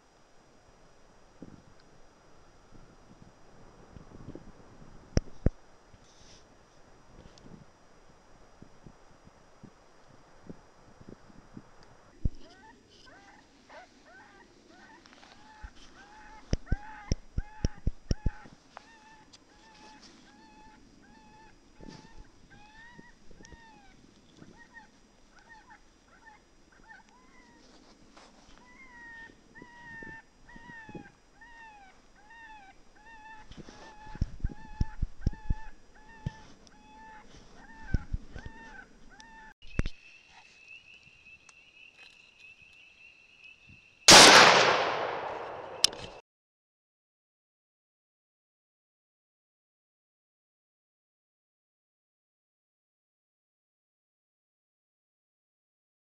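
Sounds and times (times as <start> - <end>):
rifle shot: 44.1 - 46.2.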